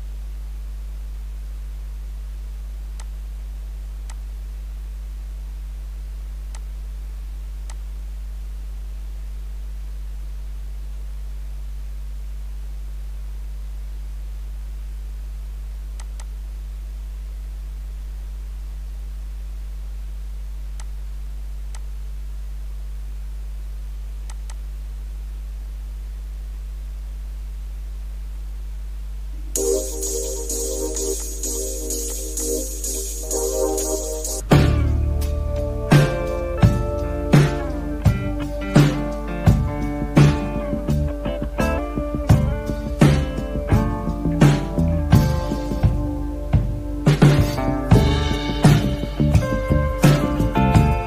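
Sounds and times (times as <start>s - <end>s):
low electrical hum: 0.0s - 51.0s
faint mouse clicks: 7.6s - 7.8s, 16.0s - 16.4s, 24.2s - 24.6s
loud electronic music: 29.6s - 41.1s, 47.3s - 51.0s.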